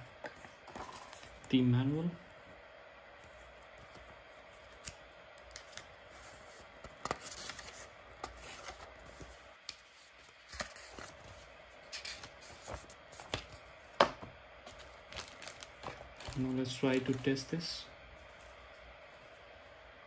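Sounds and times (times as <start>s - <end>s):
paper rustling and snapping: 6.8s - 17.4s.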